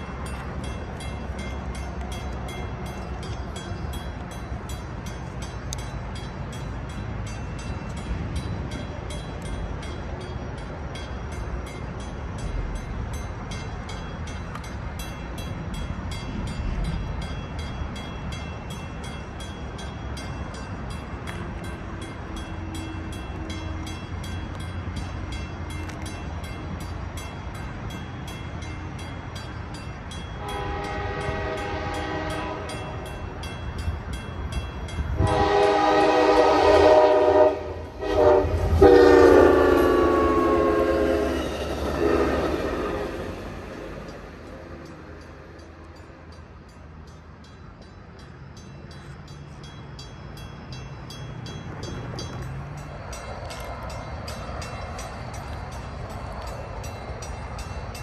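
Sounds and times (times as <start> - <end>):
crossing bell dinging: 0.0 - 58.0
diesel train rumble: 0.0 - 58.0
train air horn blasts: 30.4 - 33.0, 35.2 - 43.5.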